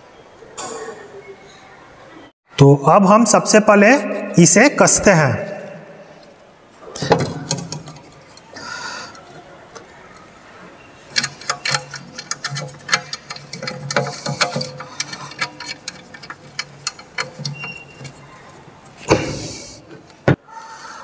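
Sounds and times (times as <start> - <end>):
metallic clicks and taps of bolt: 7.1 - 8.4, 11.1 - 18.2.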